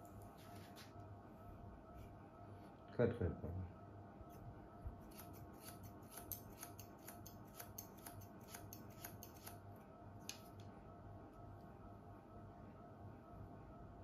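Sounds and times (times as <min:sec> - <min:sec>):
scissors snipping hair: 0:05.0 - 0:09.6.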